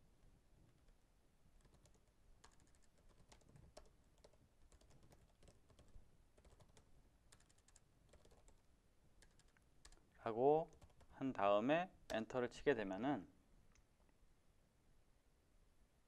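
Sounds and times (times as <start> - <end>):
keyboard typing: 1.6 - 8.6, 9.2 - 10.0, 10.6 - 11.2.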